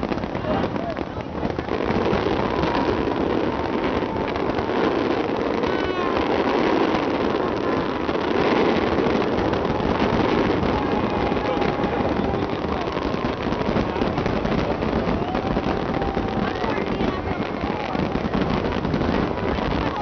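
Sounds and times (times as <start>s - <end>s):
crowd noise: 0.0s - 20.0s
fireworks rumble and crackle: 0.0s - 20.0s
rising firework whistle: 0.0s - 20.0s.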